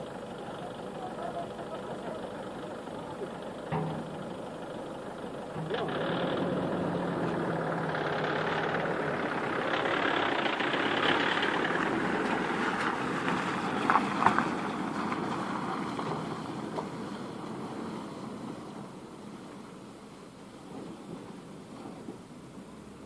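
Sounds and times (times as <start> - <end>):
car driving past on slushy road: 5.7 - 18.3.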